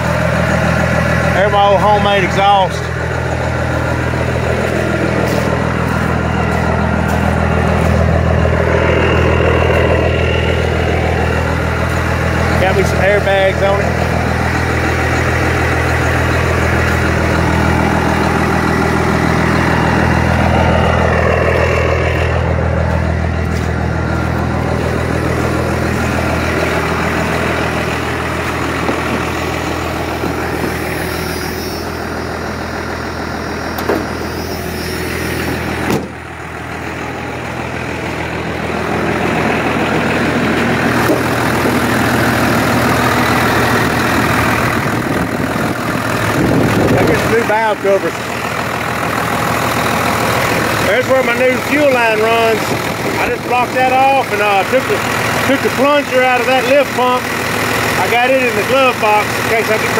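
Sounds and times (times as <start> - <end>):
diesel engine idling: 0.0 - 59.9
sharp knocks: 33.8 - 34.1, 35.8 - 36.2.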